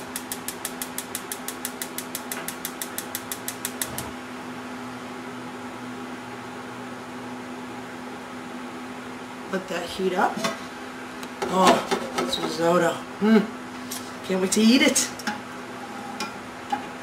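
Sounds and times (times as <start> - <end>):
gas igniter clicking rapidly: 0.1 - 4.1.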